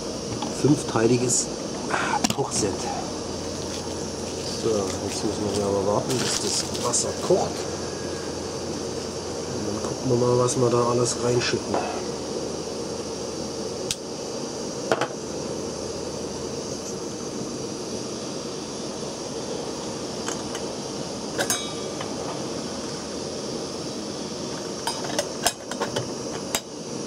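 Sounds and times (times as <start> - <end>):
gas burner hissing: 0.0 - 27.0.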